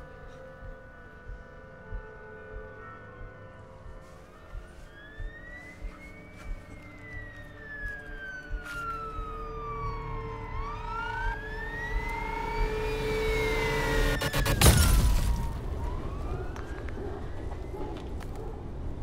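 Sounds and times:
police siren wailing: 0:00.0 - 0:18.4.

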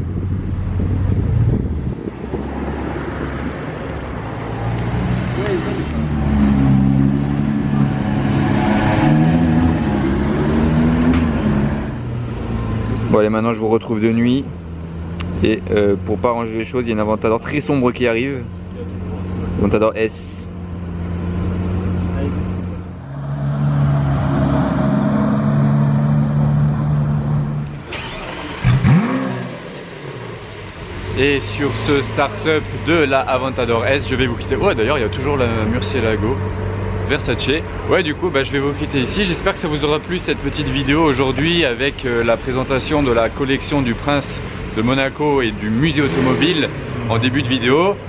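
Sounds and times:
sports car engine pulling away: 0:00.1 - 0:13.1, 0:20.7 - 0:37.6, 0:45.7 - 0:47.4.

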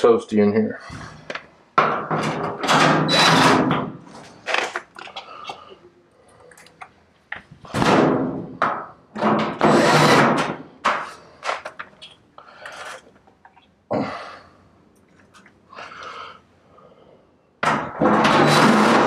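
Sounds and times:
knocks and scrapes on sheet metal: 0:01.8 - 0:04.1, 0:07.7 - 0:11.2, 0:17.6 - 0:19.0.

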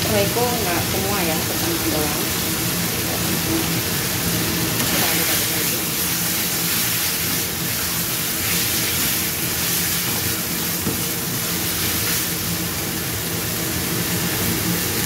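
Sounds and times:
meat sizzling in a frying pan: 0:00.0 - 0:15.0
spatula stirring: 0:04.7 - 0:12.9.

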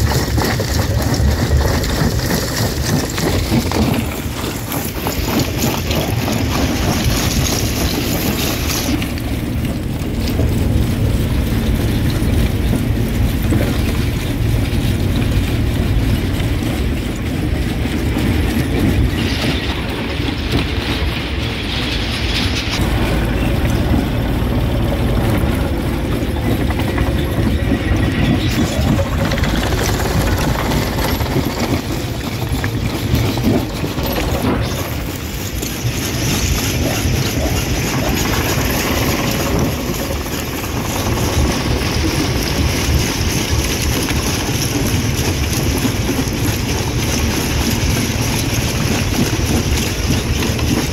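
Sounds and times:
stone cracking and clattering: 0:00.0 - 0:24.2
rock crusher rumbling: 0:00.0 - 0:50.9.

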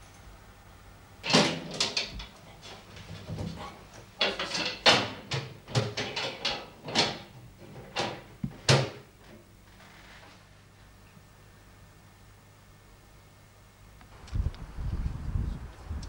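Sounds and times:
metal panels clattering and knocking: 0:01.2 - 0:09.1.

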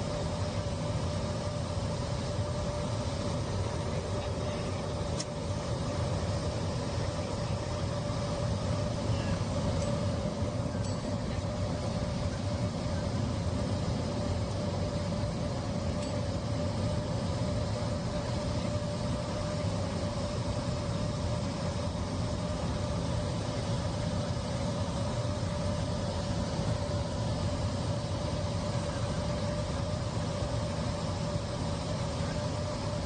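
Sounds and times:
airliner cabin engine drone: 0:00.0 - 0:33.0
constant humming tone: 0:00.0 - 0:33.0.

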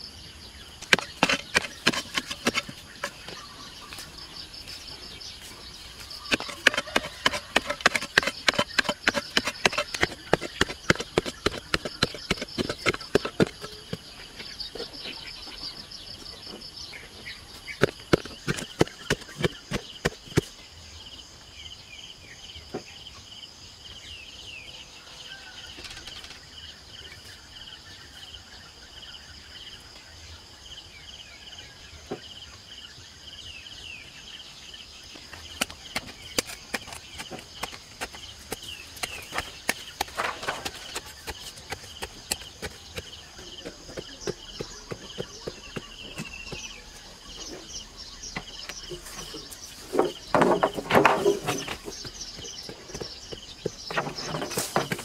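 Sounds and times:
bird calls: 0:00.0 - 0:20.7, 0:24.2 - 0:55.0
insects chirping: 0:00.0 - 0:55.0
digging tool striking dry soil: 0:00.8 - 0:04.1, 0:05.9 - 0:15.0, 0:17.7 - 0:20.6, 0:35.3 - 0:47.6, 0:48.4 - 0:55.0.

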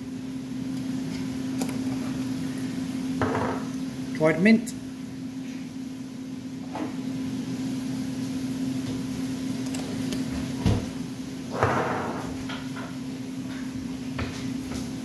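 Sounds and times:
steady low hum: 0:00.0 - 0:15.0
kitchen items knocking on worktop: 0:03.2 - 0:03.7.

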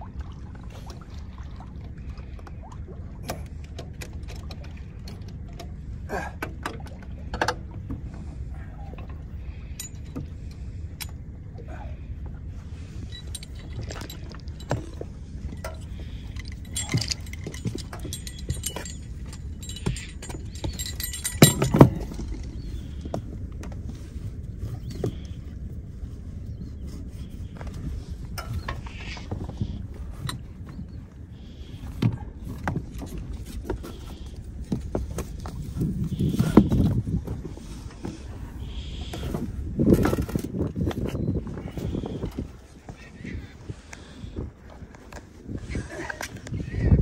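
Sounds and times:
steady low rumble: 0:00.0 - 0:47.0
anchor chain clinking: 0:08.6 - 0:11.3, 0:12.9 - 0:24.0, 0:27.6 - 0:43.0.

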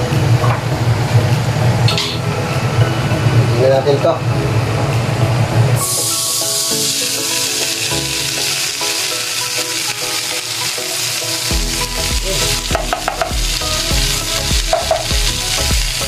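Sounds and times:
corn sizzling in fat: 0:05.8 - 0:16.0.

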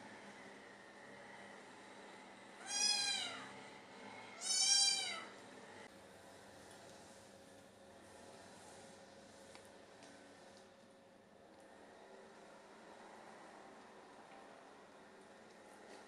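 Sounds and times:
kitten meowing: 0:02.6 - 0:03.4, 0:04.4 - 0:05.3.

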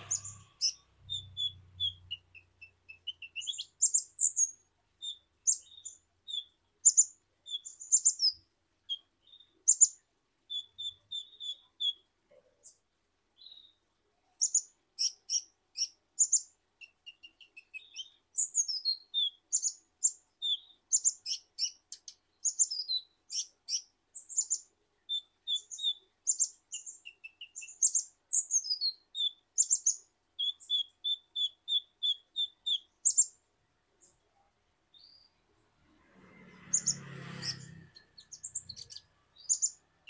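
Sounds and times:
sunbird singing high chirps: 0:00.0 - 0:12.1, 0:13.4 - 0:33.4, 0:34.9 - 0:35.4, 0:36.6 - 0:40.0.

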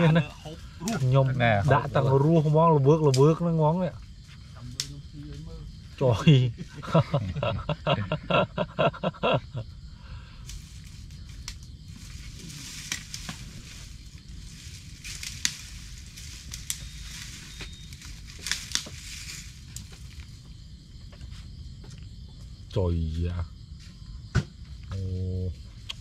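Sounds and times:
crackling and rustling: 0:10.4 - 0:22.7.

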